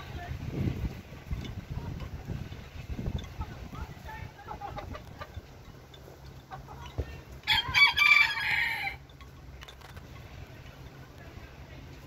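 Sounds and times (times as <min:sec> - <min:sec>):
rooster crowing: 0:07.4 - 0:09.0.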